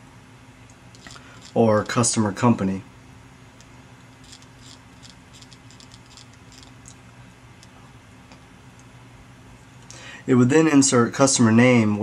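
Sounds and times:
faint low hum: 0.0 - 12.0
trackball clicks and ticks: 3.6 - 7.0.

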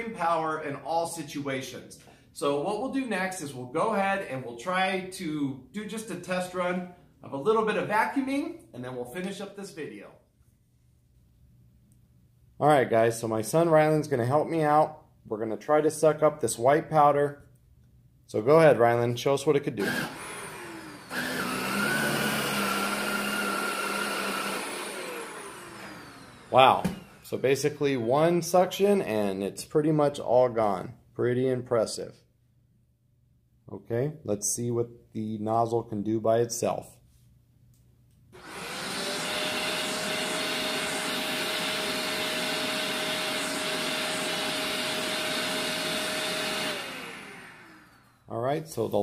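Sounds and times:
vacuum cleaner running: 19.8 - 28.0, 38.4 - 48.3.

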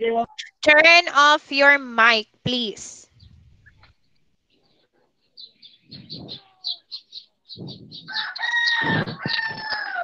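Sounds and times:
rapid high chirps: 5.4 - 9.9
rooster crowing: 8.0 - 10.0.

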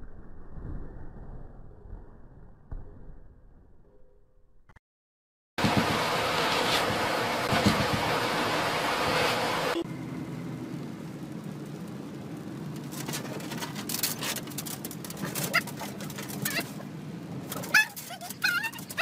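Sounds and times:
car engine and road rumble: 5.6 - 19.0
rain ticking on windshield: 9.9 - 19.0
windshield wipers: 12.6 - 19.0
dog whimpering: 15.2 - 16.8, 17.6 - 19.0.

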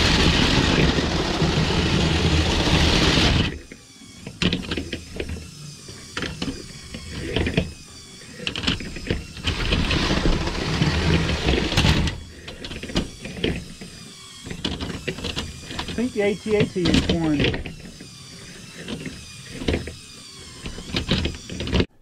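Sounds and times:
toy gears whirring and clicking: 0.0 - 21.9.

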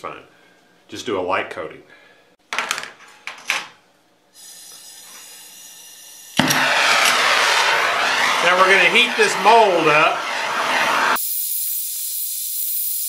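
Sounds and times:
gas hissing from torch: 4.3 - 13.0
torch flame hissing: 4.4 - 13.0.

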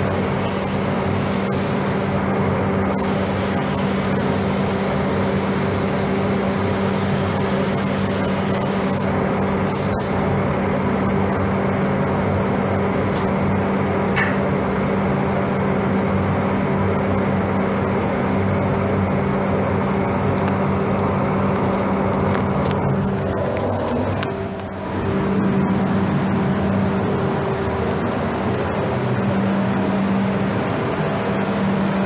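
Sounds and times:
ventilation fans droning: 0.0 - 32.0.

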